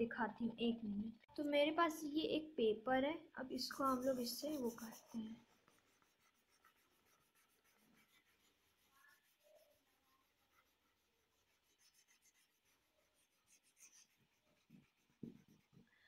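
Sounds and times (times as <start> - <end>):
paper rubbing over oil pastel: 3.6 - 15.9.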